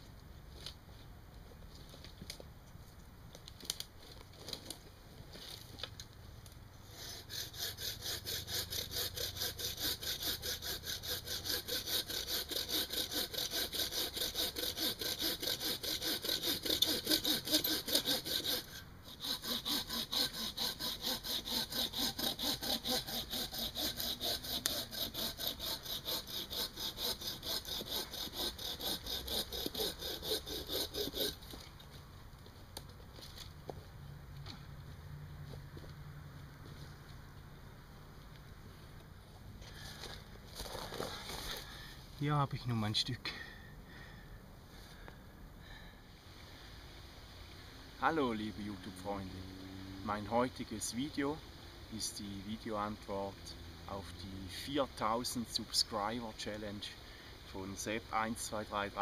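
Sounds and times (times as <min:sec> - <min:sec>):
hand saw cutting branch: 0:06.9 - 0:31.8, 0:39.6 - 0:43.6, 0:48.0 - 0:57.0, 0:57.6 - 0:59.0.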